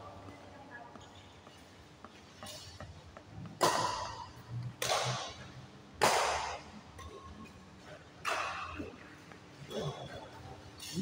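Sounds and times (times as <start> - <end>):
racket hitting shuttlecock: 3.4 - 7.2, 8.2 - 8.9.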